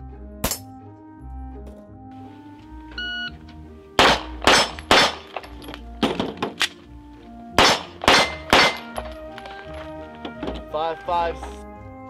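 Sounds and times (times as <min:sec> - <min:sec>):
pistol shots: 0:04.0 - 0:06.8, 0:07.6 - 0:09.5.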